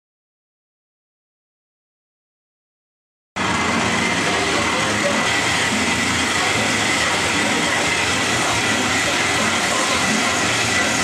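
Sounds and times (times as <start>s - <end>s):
band saw cutting metal: 3.4s - 11.0s
thin steady whine: 3.4s - 11.0s.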